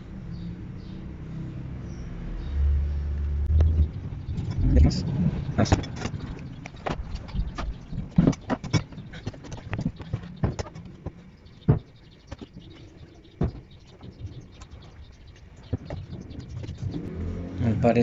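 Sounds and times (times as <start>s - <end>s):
clicks and knocks handling wires: 5.6s - 12.5s.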